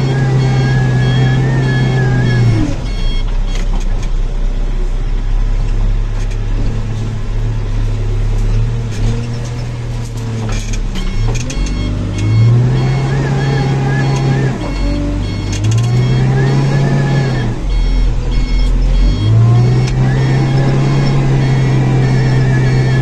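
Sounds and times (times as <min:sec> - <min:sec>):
repeating electronic beep: 0:00.0 - 0:03.6, 0:11.0 - 0:23.0
diesel engine running: 0:00.0 - 0:23.0.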